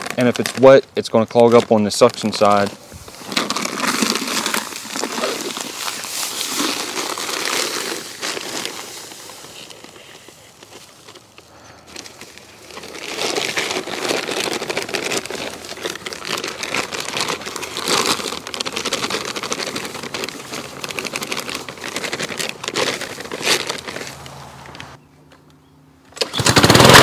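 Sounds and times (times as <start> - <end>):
plastic bag crinkling: 0.0 - 24.7
sand pouring into plastic bucket: 2.3 - 10.3.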